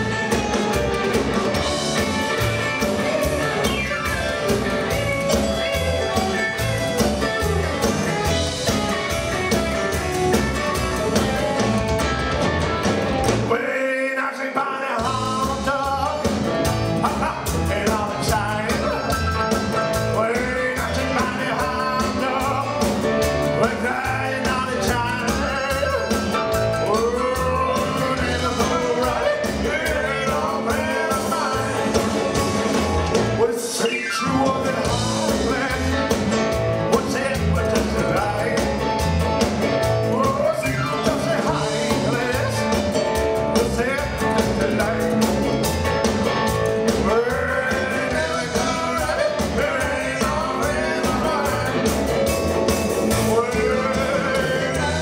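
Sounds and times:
rock and roll band playing: 0.0s - 55.0s
man singing: 13.4s - 45.7s, 46.8s - 55.0s.

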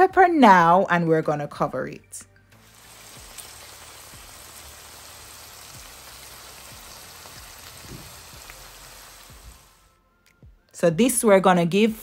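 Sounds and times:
food sizzling in a frying pan: 2.6s - 9.9s.

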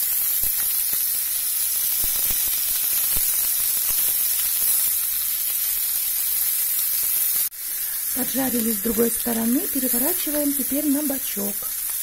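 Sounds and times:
fish sizzling in oil: 0.0s - 12.0s
oil popping and crackling: 0.0s - 12.0s.

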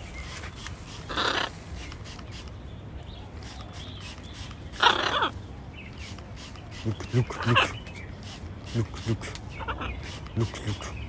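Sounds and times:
macaw squawking: 0.9s - 2.2s, 3.4s - 5.4s, 6.0s - 11.0s.

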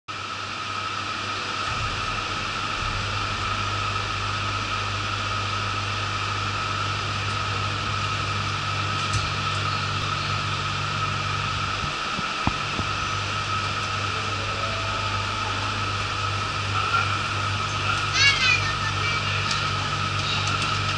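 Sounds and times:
air conditioning hiss and hum: 0.1s - 20.9s
low hum: 0.1s - 20.9s
steady mid-pitched tone: 1.3s - 8.9s, 9.8s - 17.6s.

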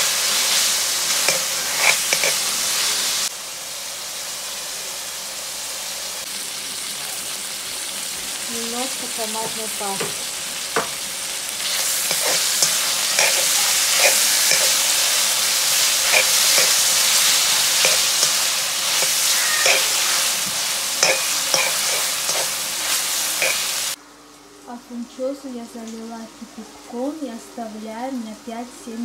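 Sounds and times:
meat sizzling in a pot: 0.0s - 28.6s
spatula scraping a pot: 1.2s - 2.5s, 11.7s - 23.8s.

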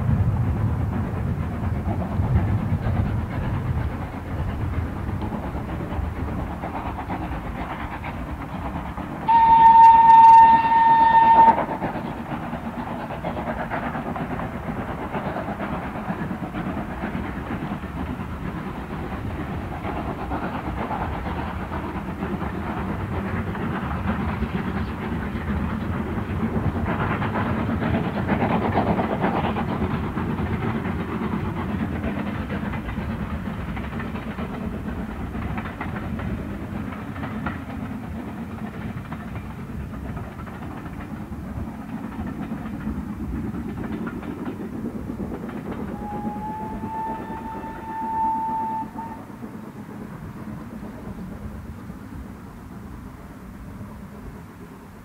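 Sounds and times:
steam train running past: 0.0s - 55.0s
steam locomotive whistle: 9.3s - 11.8s, 45.9s - 49.4s.

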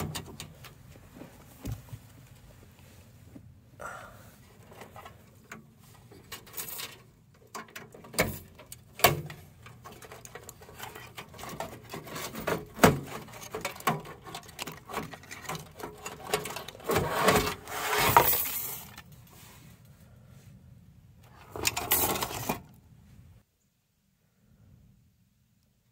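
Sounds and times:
clicks and knocks of metal and plastic: 0.0s - 0.8s, 4.6s - 17.6s, 21.3s - 22.7s
rustling and scraping: 0.0s - 3.5s, 4.4s - 19.8s, 21.2s - 23.4s.

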